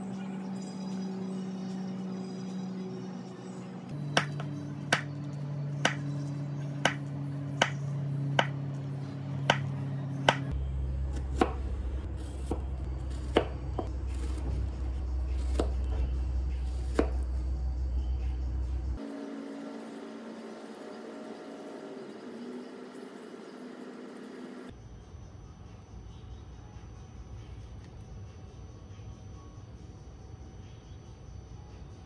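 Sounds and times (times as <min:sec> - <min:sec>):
background music with low notes: 0:00.0 - 0:23.7.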